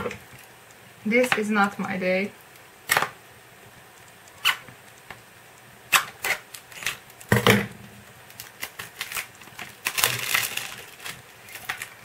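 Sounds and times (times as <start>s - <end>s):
plastic wrap crackling: 5.9s - 12.0s
scissors snipping plastic wrap: 8.4s - 12.0s.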